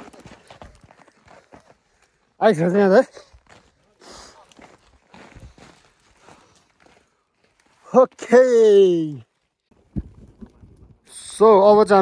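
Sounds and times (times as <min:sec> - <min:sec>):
footsteps of person walking: 0:00.0 - 0:02.4, 0:03.2 - 0:08.3.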